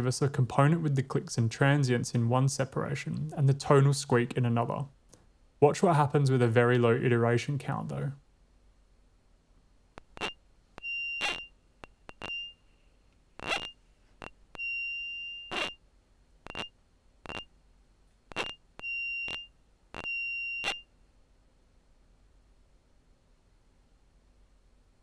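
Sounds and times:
high tonal squeak: 10.0 - 12.6, 13.4 - 15.8, 16.5 - 16.7, 17.3 - 17.5, 18.3 - 20.9.

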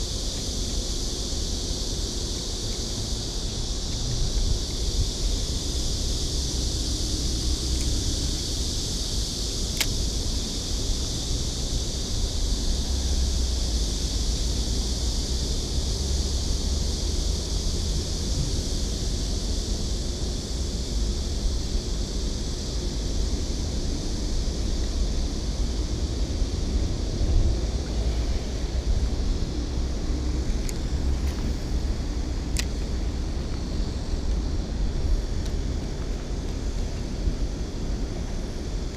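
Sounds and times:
steady high hiss: 0.0 - 38.9
small click: 9.8 - 10.0.

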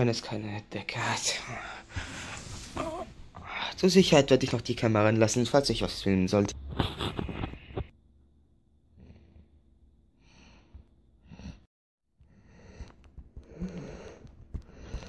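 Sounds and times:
breathing close to microphone: 1.5 - 3.8, 6.9 - 7.9, 10.2 - 15.0.

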